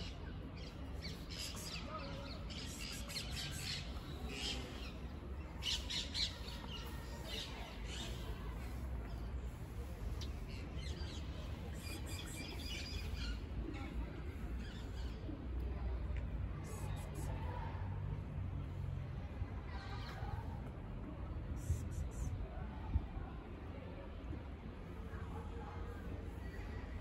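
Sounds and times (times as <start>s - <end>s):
small birds chirping: 0.0s - 15.3s.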